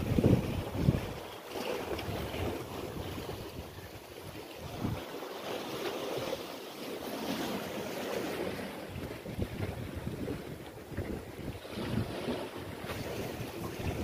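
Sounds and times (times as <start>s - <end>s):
wind buffeting microphone: 0.0s - 5.2s, 8.3s - 14.0s
sea waves on rocks: 0.0s - 14.0s.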